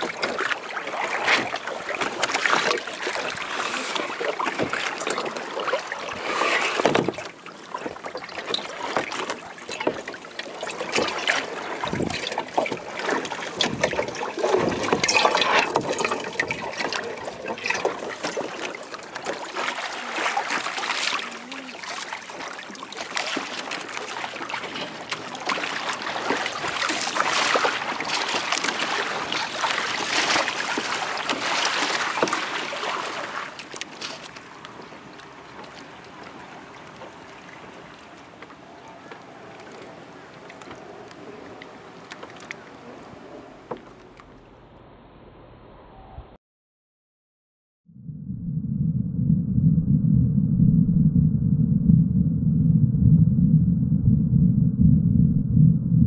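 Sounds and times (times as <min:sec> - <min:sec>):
water splashing against hull: 0:00.0 - 0:44.8.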